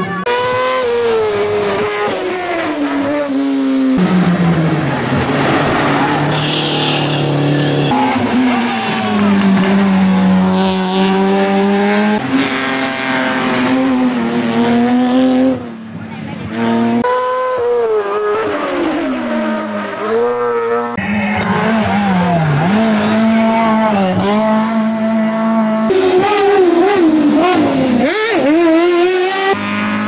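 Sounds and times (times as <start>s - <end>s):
racing car engines at high revs: 0.0s - 30.0s.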